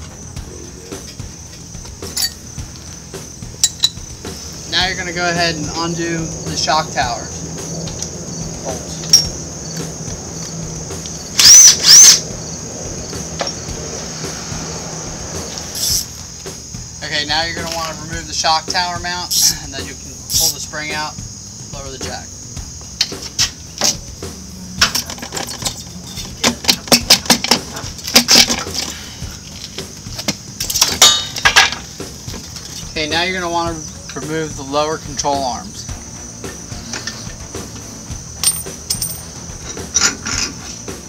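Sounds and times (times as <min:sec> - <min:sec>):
crickets chirping: 0:00.0 - 0:41.0
metallic clicks and clanks: 0:24.8 - 0:29.0.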